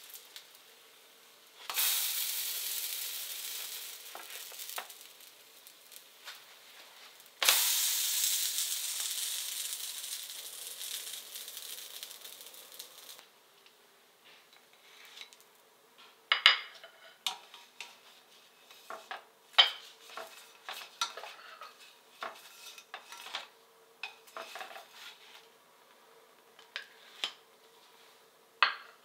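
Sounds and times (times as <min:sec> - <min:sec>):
plates clinking: 0:16.3 - 0:17.5, 0:28.6 - 0:29.0
spatula scraping metal frying pan: 0:19.7 - 0:25.4.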